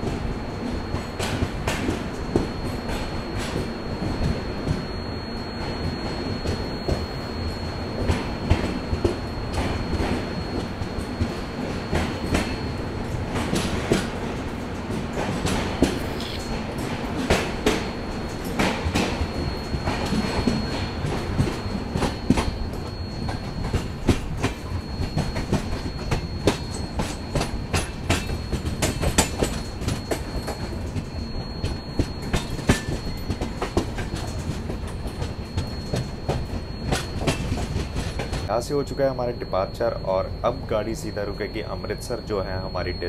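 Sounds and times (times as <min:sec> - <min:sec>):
faint high whine: 0:00.0 - 0:43.0
train wheels clacking over rail joints: 0:23.6 - 0:31.0.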